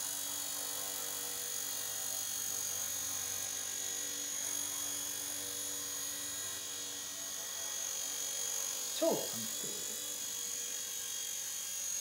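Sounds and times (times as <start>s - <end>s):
toy helicopter motor whine: 0.0s - 12.0s.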